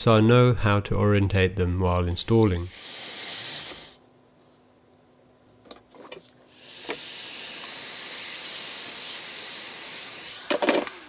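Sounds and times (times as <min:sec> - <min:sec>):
heat gun blowing: 0:02.3 - 0:04.0, 0:06.5 - 0:11.0.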